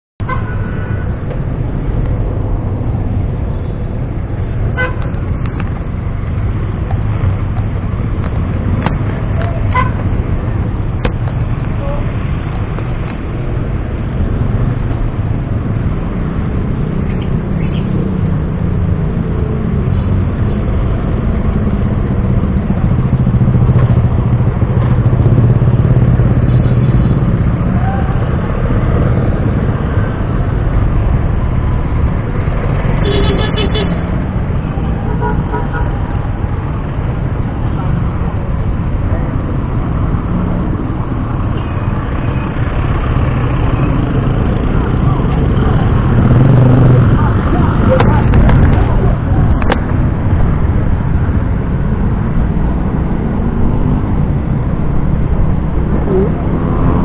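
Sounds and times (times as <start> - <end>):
vehicle horn: 0.2 - 1.2, 4.8 - 5.1, 9.7 - 10.0, 33.0 - 34.0
road noise: 0.2 - 57.0.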